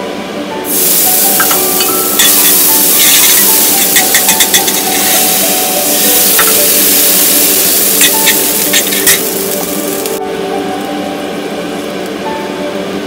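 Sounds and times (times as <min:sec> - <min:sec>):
liquid sizzling in a wok: 0:00.7 - 0:10.2.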